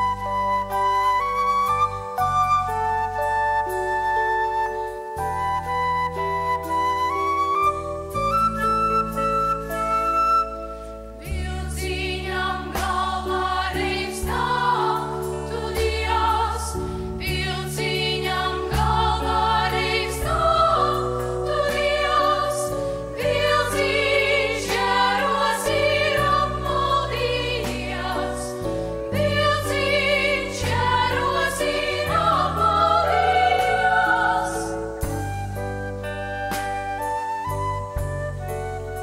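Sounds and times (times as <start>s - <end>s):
flute solo: 0.0s - 11.3s, 34.8s - 39.0s
girls choir singing: 11.3s - 35.0s
live band playing: 35.0s - 39.0s.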